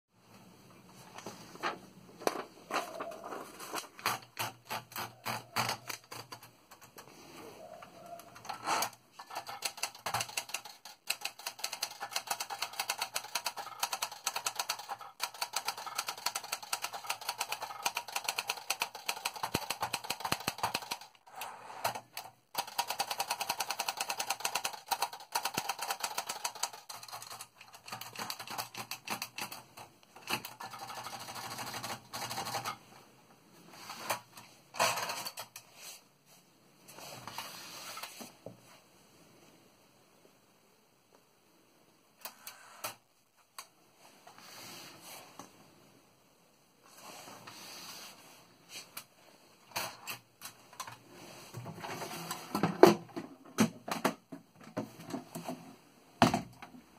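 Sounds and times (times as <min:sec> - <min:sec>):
typewriter keys clacking: 0:02.8 - 0:07.0, 0:08.1 - 0:21.2, 0:21.8 - 0:32.8.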